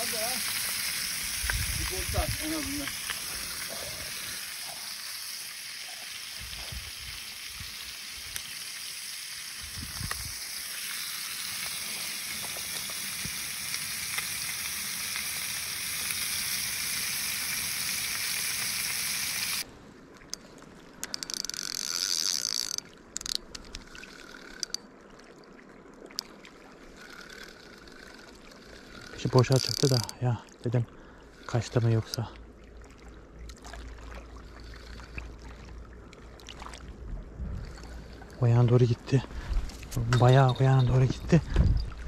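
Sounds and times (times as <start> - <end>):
fish sizzling in oil: 0.0 - 19.7
scattered clicks: 28.9 - 30.2.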